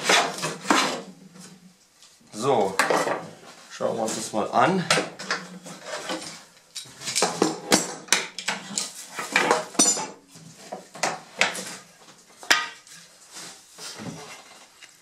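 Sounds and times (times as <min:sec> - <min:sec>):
wooden boards clattering and knocking: 0:00.0 - 0:01.1, 0:07.0 - 0:12.8.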